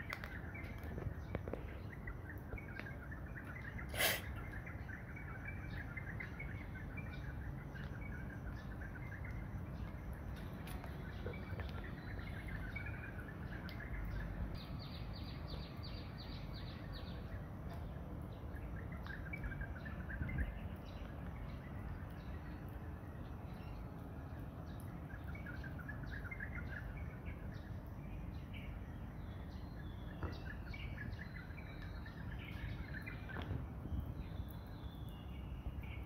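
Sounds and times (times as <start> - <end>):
faint chirps: 0.0 - 23.8.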